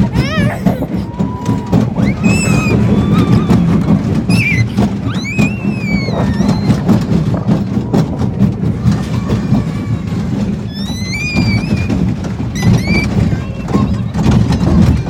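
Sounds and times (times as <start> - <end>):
roller coaster rumbling clatter: 0.0 - 15.0
high-pitched squeals: 1.4 - 7.2, 10.6 - 13.6.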